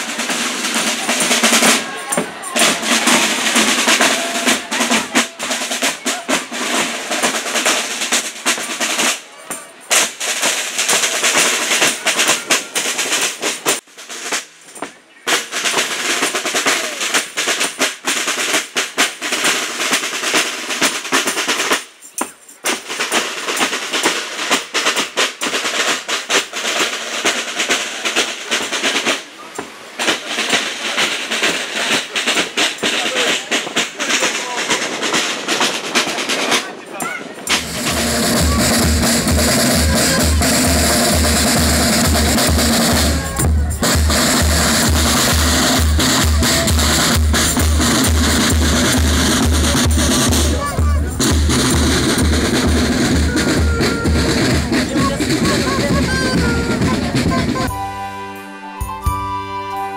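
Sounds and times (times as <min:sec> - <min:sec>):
snare drum rolls: 0:00.0 - 0:57.9
brass horns: 0:37.3 - 0:59.9.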